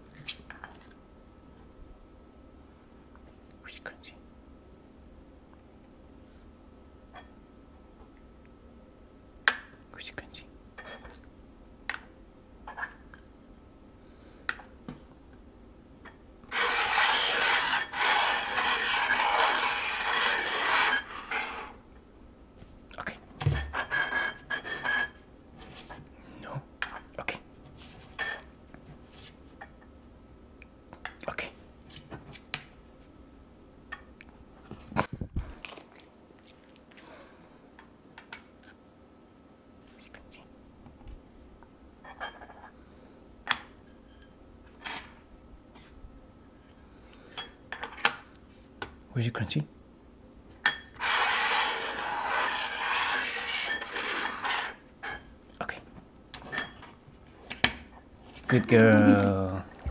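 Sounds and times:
metal tins scraping on tabletop: 16.5 - 21.8, 50.8 - 55.3.

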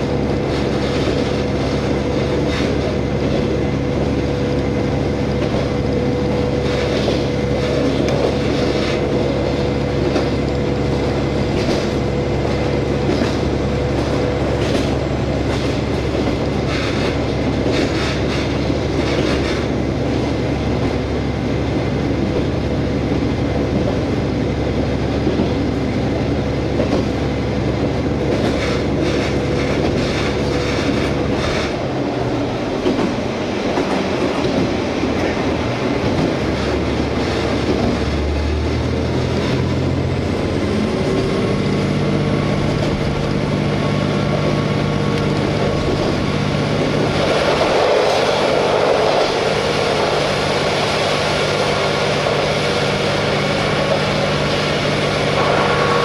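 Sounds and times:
diesel engine droning: 35.0 - 56.0.

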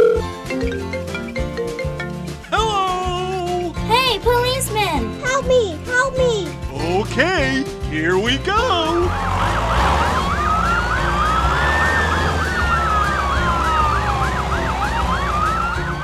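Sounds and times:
siren wail: 9.1 - 16.0
siren yelp: 9.1 - 16.0.

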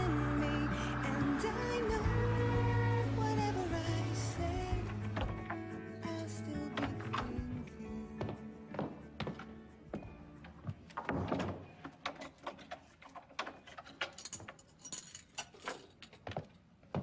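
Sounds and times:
keys jingling: 5.1 - 16.4
door being handled: 10.9 - 14.6.

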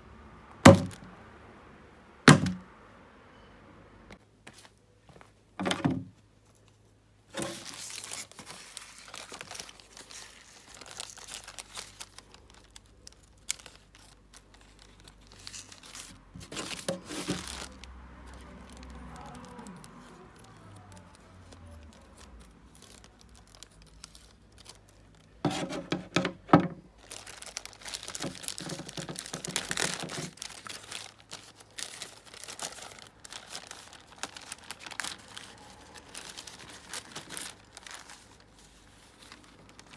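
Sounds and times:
plastic bag crinkling: 6.5 - 39.9
scissors cutting plastic: 27.3 - 32.9.

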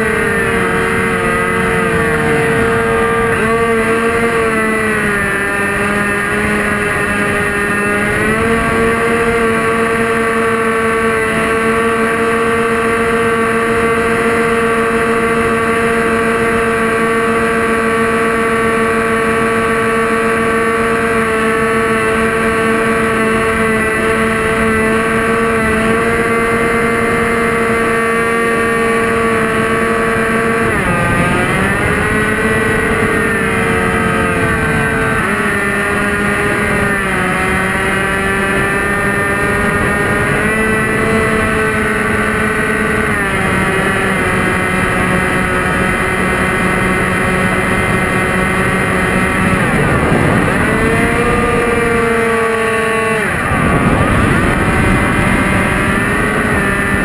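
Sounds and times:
model airplane motor whine: 0.0 - 57.0
wind rush: 30.3 - 37.6, 45.8 - 57.0.

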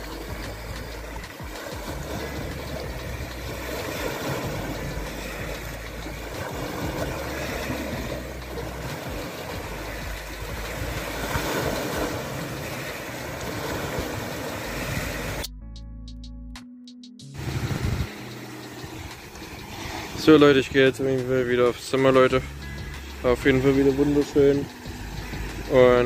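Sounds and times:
sea waves breaking on stones: 0.0 - 15.4, 17.4 - 22.3.

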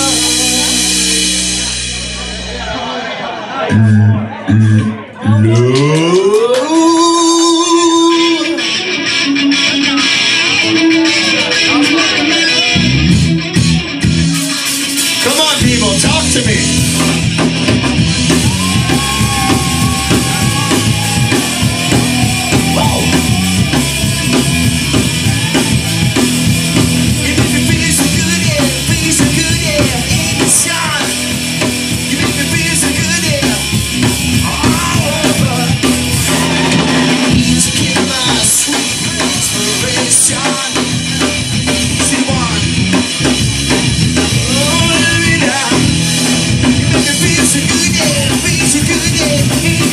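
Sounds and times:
bass guitar: 0.0 - 49.9
drum kit: 0.0 - 49.9
electric guitar: 0.0 - 49.9
person singing: 2.6 - 12.8, 18.5 - 42.7, 44.3 - 46.1, 46.9 - 49.9.

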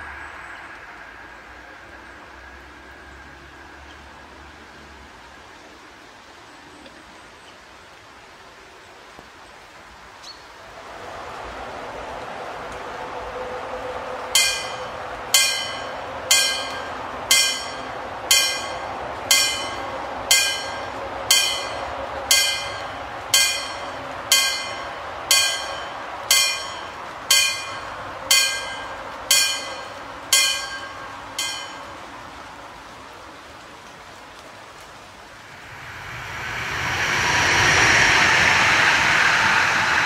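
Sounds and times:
level crossing warning bell: 14.4 - 32.1.

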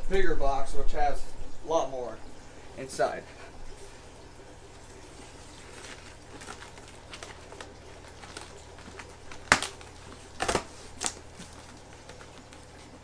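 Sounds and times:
tape ripping: 5.5 - 13.0
tape snapping: 6.3 - 12.7.

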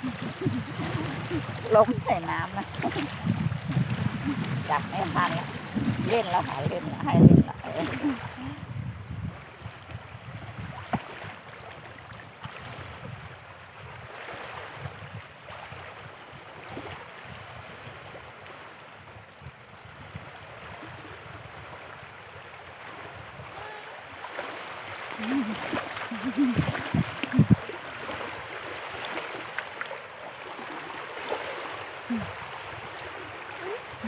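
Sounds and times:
hands splashing water: 0.0 - 7.1, 24.4 - 27.8
water washing over shore: 0.0 - 34.0.

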